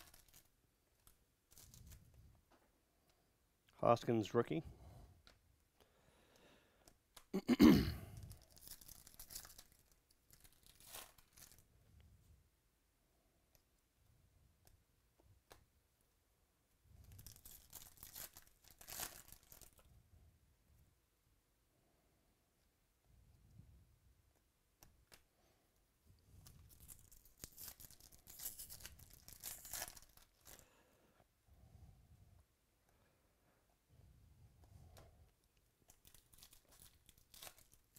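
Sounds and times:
foil wrapper ripping: 0:00.0 - 0:00.5, 0:08.2 - 0:11.6, 0:17.1 - 0:19.8, 0:26.7 - 0:30.6, 0:35.9 - 0:37.9
foil crinkling: 0:00.0 - 0:02.0, 0:08.2 - 0:11.6, 0:17.0 - 0:19.9, 0:26.5 - 0:30.7, 0:35.8 - 0:37.9
cards being handled: 0:08.2 - 0:11.6, 0:26.3 - 0:30.6, 0:35.7 - 0:37.9.

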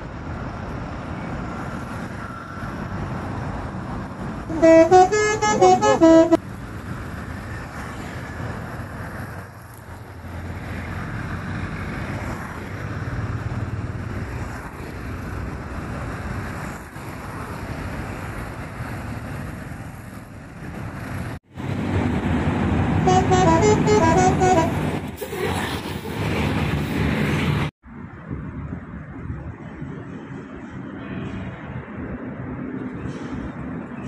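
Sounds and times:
bus engine: 0:00.0 - 0:34.0
road traffic: 0:00.0 - 0:34.0
bus horn playing melody: 0:04.5 - 0:06.4, 0:23.0 - 0:25.0.

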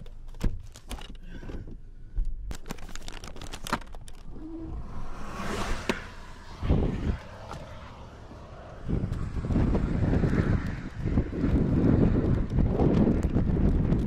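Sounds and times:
camera handling clicks and scrapes: 0:02.5 - 0:04.4
short rushing noise: 0:04.4 - 0:10.8.

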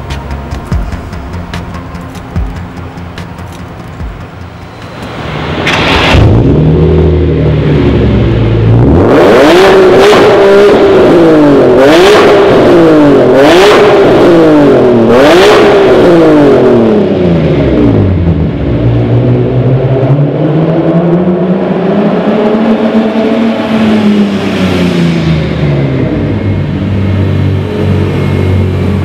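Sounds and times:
car engine revving: 0:00.0 - 0:29.0.

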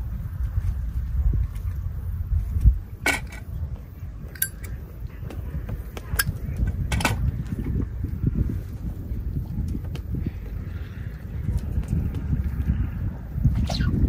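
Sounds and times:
steady low rumble: 0:00.0 - 0:14.0
light clicks and clinks: 0:04.3 - 0:04.8.

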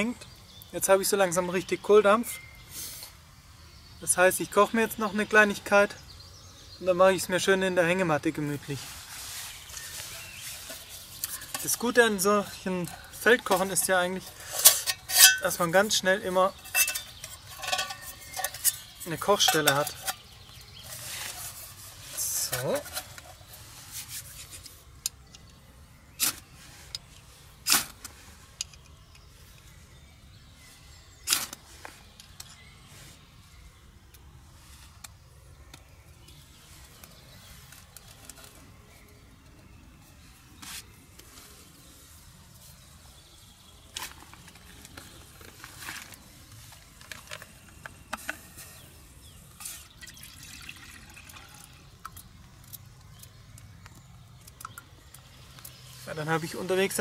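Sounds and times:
metal cup and camp stove clinking: 0:12.8 - 0:20.9, 0:50.0 - 0:52.9.

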